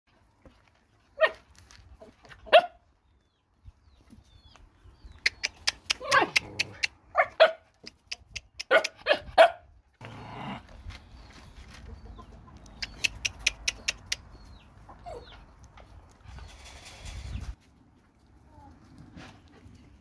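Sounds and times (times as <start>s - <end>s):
dogs barking: 2.5s - 2.8s, 6.0s - 7.7s, 8.6s - 9.7s
quick sharp clicks: 12.6s - 14.3s.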